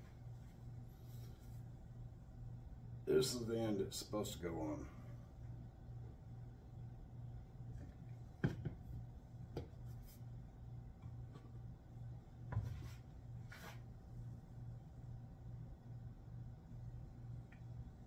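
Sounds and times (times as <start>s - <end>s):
rubbing and scraping on bench: 12.5s - 13.9s.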